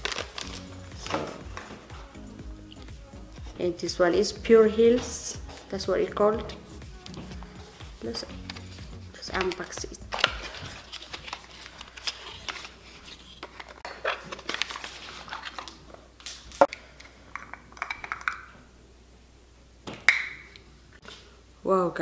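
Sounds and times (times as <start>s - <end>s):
packaging crinkling: 0.0s - 1.8s, 8.3s - 16.7s.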